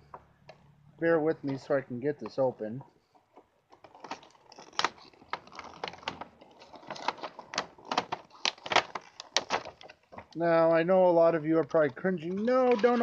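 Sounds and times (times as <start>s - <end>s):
packaging being opened by hand: 3.8s - 10.4s.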